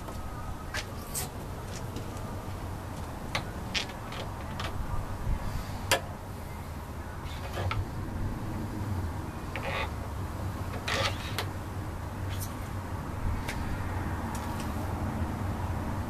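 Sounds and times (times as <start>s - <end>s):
steady low rumble: 0.0s - 10.8s.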